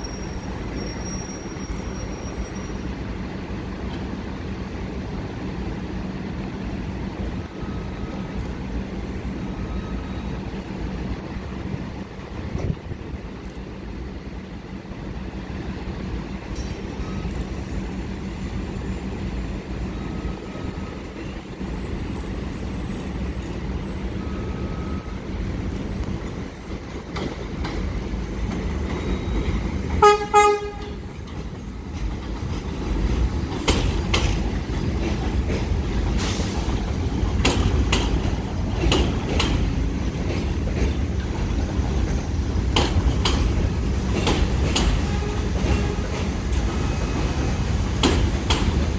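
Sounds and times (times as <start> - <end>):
subway train rumbling past: 0.0 - 48.9
wheels clattering over rail joints: 25.6 - 48.9
train horn toots: 30.0 - 31.2, 44.9 - 47.0.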